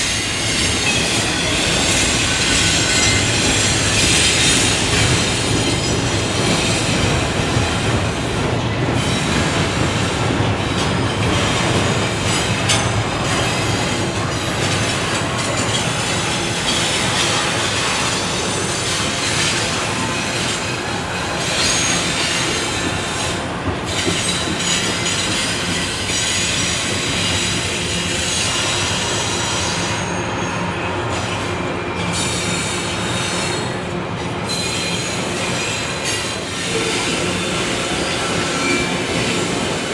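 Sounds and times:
train wheels rumbling on rails: 0:00.0 - 0:39.9.

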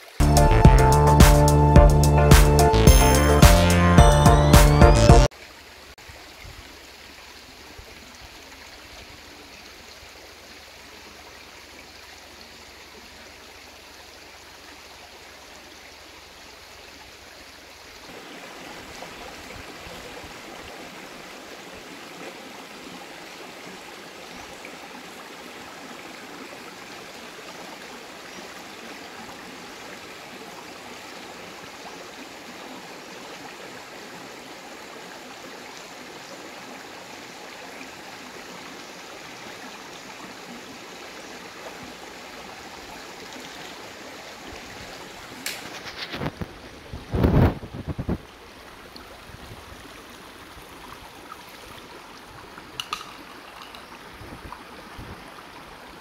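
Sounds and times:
rocky stream rushing: 0:05.2 - 0:56.0.

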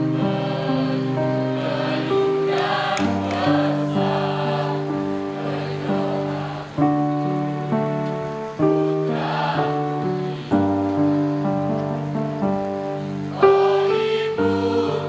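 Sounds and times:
choir singing held chords: 0:00.0 - 0:15.0.

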